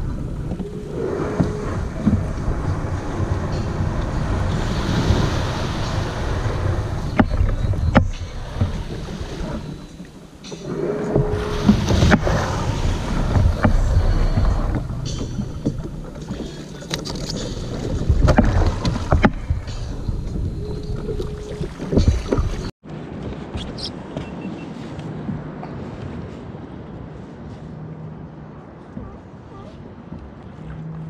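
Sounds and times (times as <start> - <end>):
water sloshing around kayak hull: 0.0 - 22.7
wind buffeting microphone: 0.0 - 31.0
hull and gear knocks: 10.4 - 22.7.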